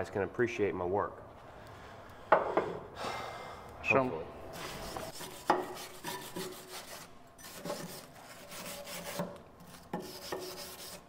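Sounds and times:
hand tool scraping steel: 4.6 - 11.0.

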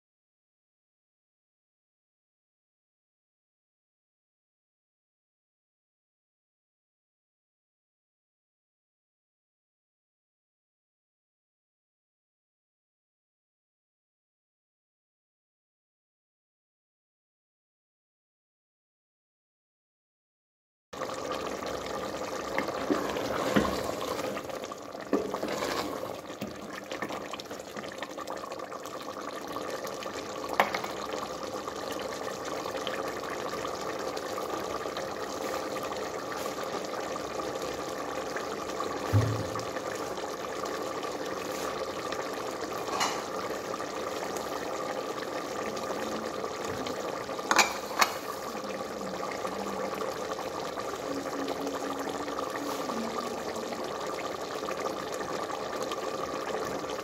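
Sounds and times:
curry bubbling in a pot: 21.0 - 57.0.

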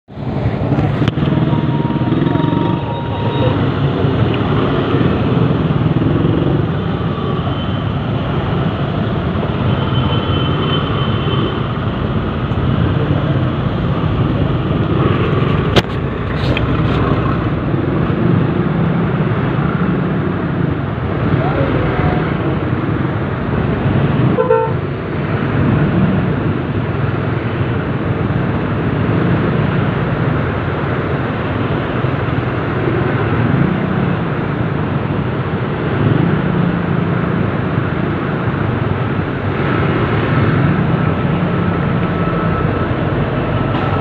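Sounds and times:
other vehicles: 0.0 - 44.0.

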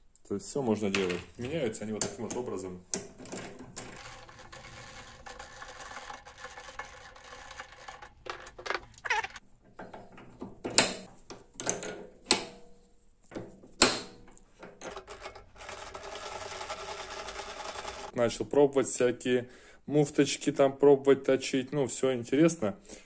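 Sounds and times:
metallic scrape: 4.0 - 9.4.

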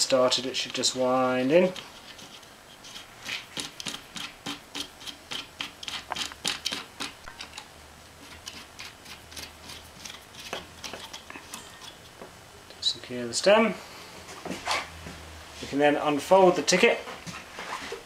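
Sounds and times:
light rubbing: 0.6 - 7.6.

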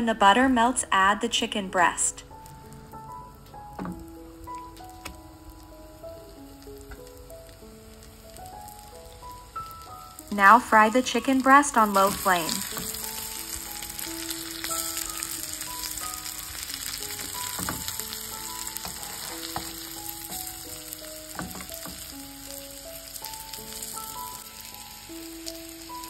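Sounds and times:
chicken sizzling in butter: 1.4 - 26.0
metal utensil knocking pan: 17.2 - 18.0.

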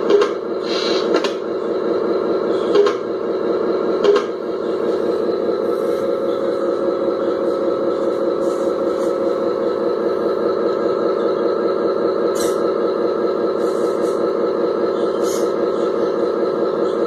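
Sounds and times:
model truck engine drone: 0.0 - 17.0
short hisses: 0.6 - 1.1.

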